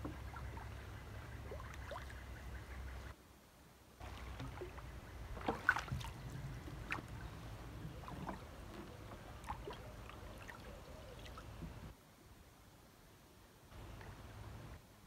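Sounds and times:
paddle splashing water: 0.0 - 3.1, 4.0 - 11.9.

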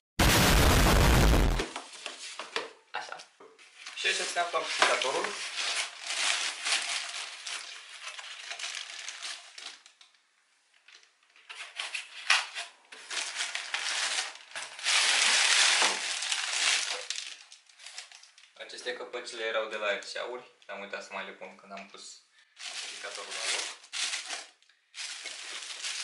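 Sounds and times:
plastic wrap crinkling: 3.7 - 10.2, 10.8 - 18.6, 22.6 - 26.0.

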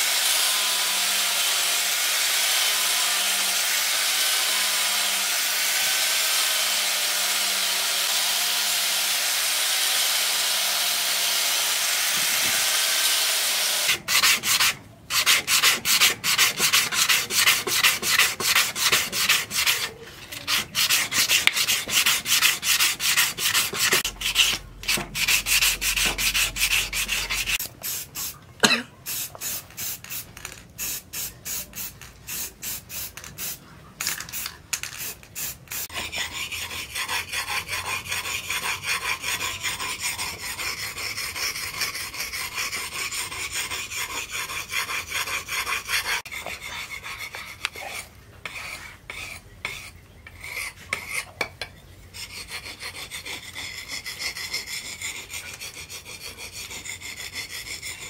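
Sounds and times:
sandpaper rubbing on steel: 13.7 - 28.4, 29.1 - 51.3, 52.2 - 58.0
blade scraping on whetstone: 13.8 - 27.7, 31.3 - 51.4, 52.2 - 58.0.

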